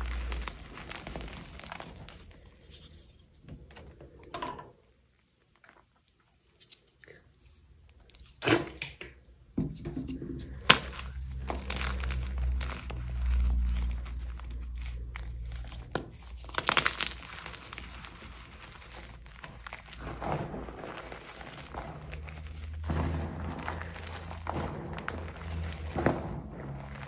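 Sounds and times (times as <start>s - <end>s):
chalk crunching and crumbling: 0.0s - 3.4s, 10.1s - 27.0s.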